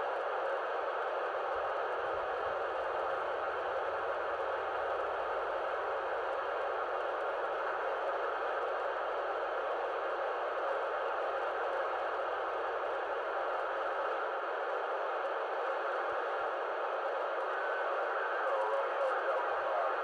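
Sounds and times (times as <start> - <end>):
radio static hiss: 17.2 - 20.0.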